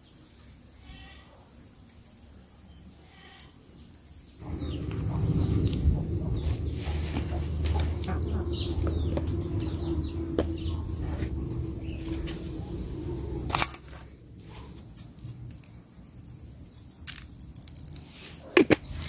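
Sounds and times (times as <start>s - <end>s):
birds chirping: 1.6s - 13.8s
low rumble and hum: 4.4s - 16.2s.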